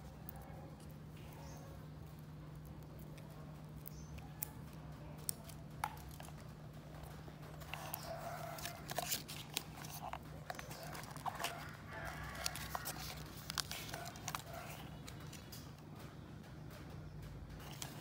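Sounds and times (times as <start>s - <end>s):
steady low hum: 0.0s - 18.0s
clicks and taps handling watches: 2.6s - 15.8s.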